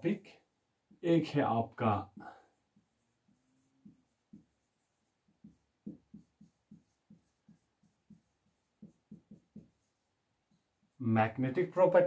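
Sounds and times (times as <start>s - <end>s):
marker pen writing on whiteboard: 2.2s - 12.0s.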